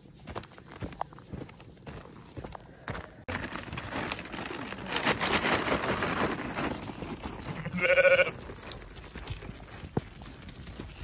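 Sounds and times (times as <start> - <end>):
rustling crackling noise: 0.0 - 11.0
sheep bleating: 7.5 - 8.4.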